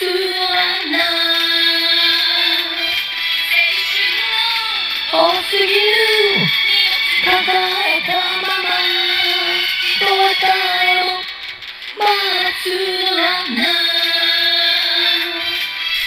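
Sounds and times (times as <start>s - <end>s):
pop backing music: 0.0s - 16.0s
high voice singing: 3.8s - 11.2s, 12.0s - 15.6s.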